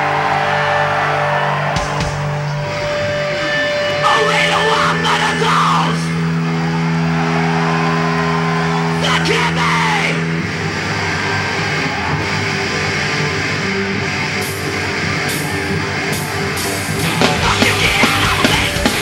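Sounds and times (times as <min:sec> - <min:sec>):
live rock band: 0:00.0 - 0:19.0
singer shouting into microphone: 0:03.4 - 0:06.3, 0:08.9 - 0:10.3, 0:17.4 - 0:19.0.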